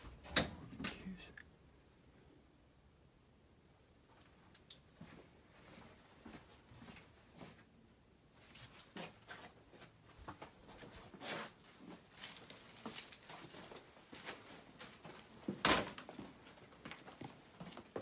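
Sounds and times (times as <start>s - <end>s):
footsteps on debris: 8.7s - 18.0s.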